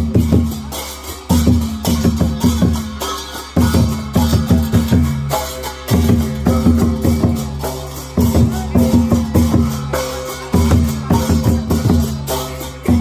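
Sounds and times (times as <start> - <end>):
drum-heavy music with bass: 0.0 - 13.0.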